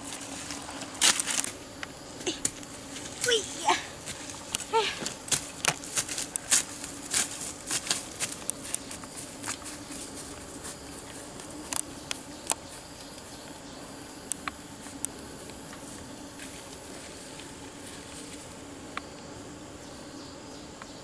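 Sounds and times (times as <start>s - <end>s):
footsteps crunching through undergrowth: 0.0s - 1.7s, 2.4s - 13.7s, 14.6s - 18.6s
sharp crackles: 0.0s - 9.8s.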